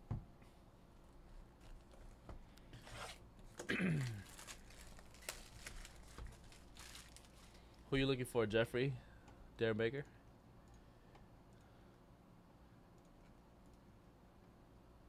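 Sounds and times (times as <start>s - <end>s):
cardboard box rustling: 4.2s - 7.6s.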